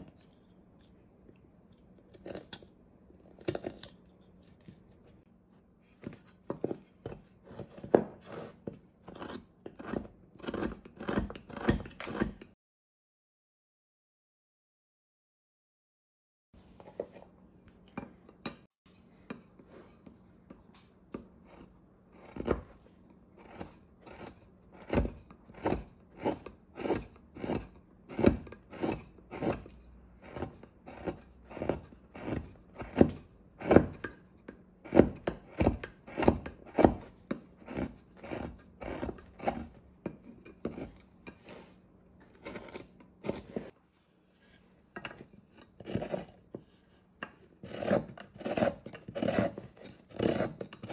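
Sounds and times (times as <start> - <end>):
gouge cutting wood: 23.4 - 34.2, 34.9 - 41.7, 42.3 - 43.7, 47.6 - 50.9.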